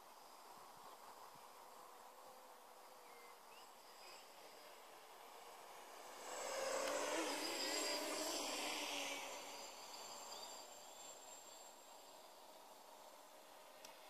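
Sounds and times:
drone propellers buzzing: 4.3s - 13.8s.

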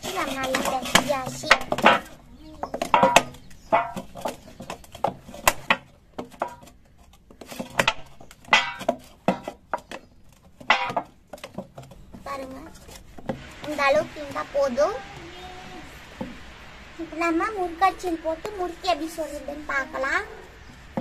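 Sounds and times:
dough knocking against steel bowl: 0.3s - 6.7s.

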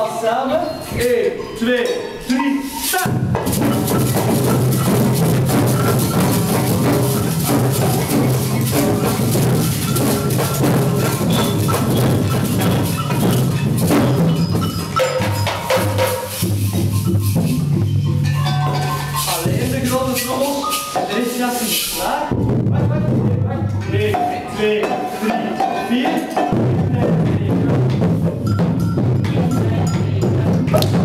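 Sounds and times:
sticks tapping small instruments: 1.7s - 22.3s
steady low drum: 3.0s - 21.5s, 22.2s - 31.0s.

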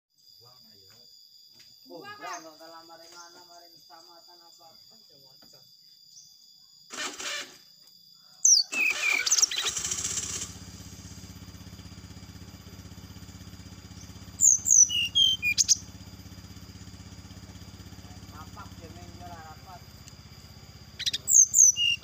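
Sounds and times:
small engine running: 6.9s - 7.7s, 8.6s - 22.0s
bird giving sharp gliding calls: 8.5s - 10.4s, 14.0s - 16.0s, 20.8s - 22.0s.

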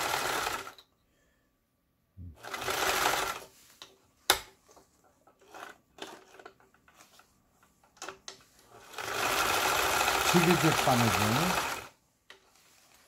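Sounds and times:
sewing machine stitching: 0.0s - 0.8s, 2.4s - 3.5s, 5.4s - 6.6s, 8.0s - 12.0s
fabric rustling: 12.4s - 13.0s.

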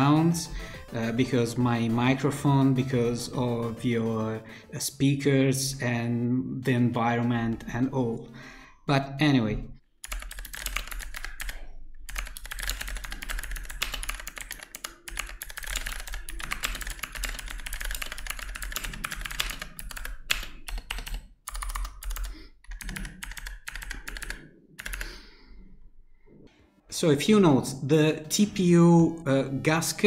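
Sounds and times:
fast mechanical keyboard typing: 10.0s - 25.1s.

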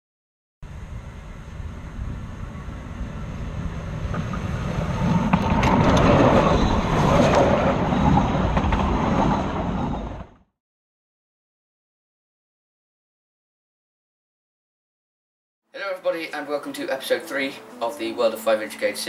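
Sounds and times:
miniature train rumbling: 1.5s - 10.4s.

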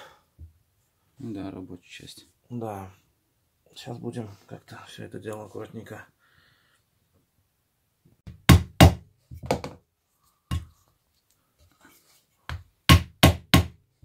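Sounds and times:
hammer knocking on wooden block: 8.3s - 9.8s, 12.5s - 13.8s.

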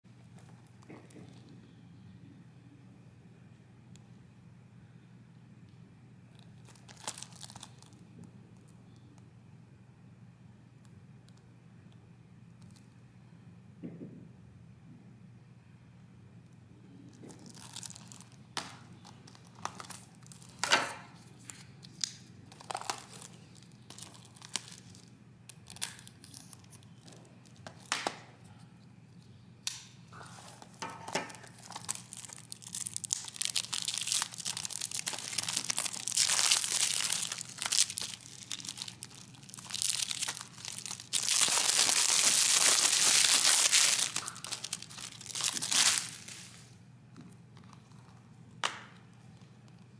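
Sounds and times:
plastic wrap crinkling and tearing: 6.4s - 8.0s, 17.1s - 28.2s, 30.2s - 46.8s
knife slitting shrink wrap: 30.8s - 46.6s.

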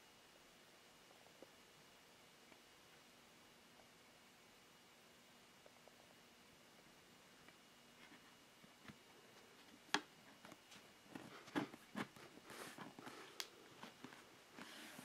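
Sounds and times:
soft rustles: 7.9s - 15.0s.

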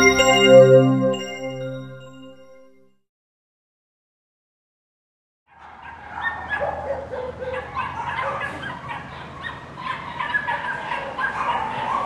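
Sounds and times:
dogs barking and yipping: 5.5s - 12.0s.

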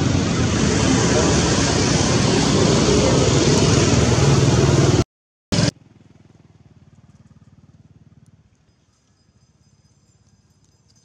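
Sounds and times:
loud engine running: 0.0s - 8.2s.

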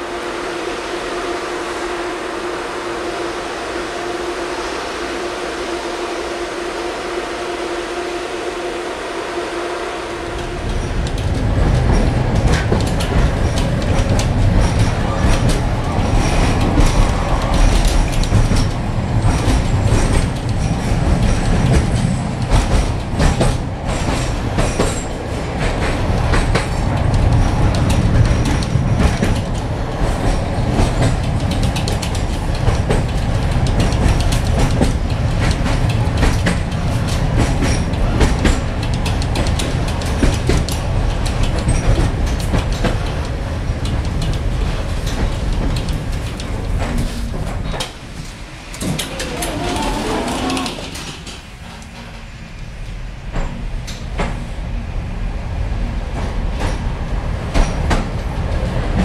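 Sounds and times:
tram wheels rumbling on rails: 0.0s - 59.0s
wheels clicking over rail joints: 10.2s - 52.2s, 56.1s - 59.0s.

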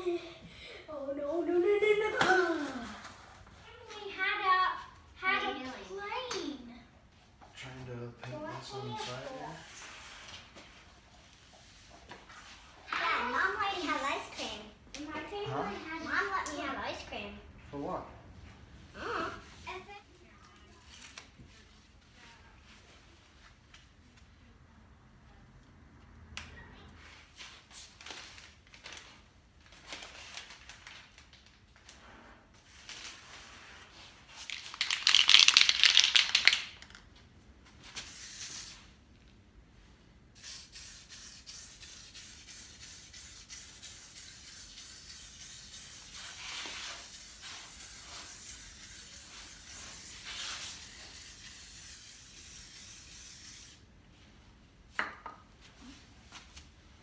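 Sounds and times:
newspaper and tape rustling: 20.4s - 21.8s, 27.4s - 37.0s
spray paint hissing: 38.0s - 38.9s, 40.4s - 53.8s.

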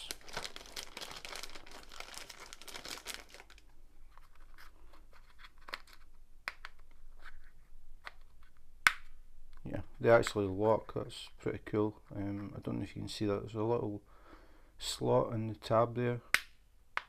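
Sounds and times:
plastic bag crinkling: 0.0s - 4.6s.

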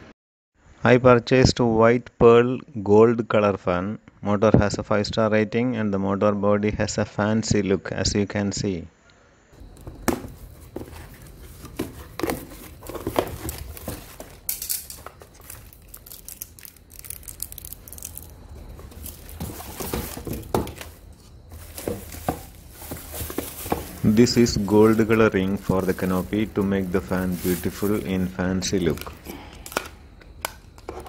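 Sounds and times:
cardboard rustling: 9.6s - 29.9s
plastic wrapping crinkling: 9.6s - 30.9s.

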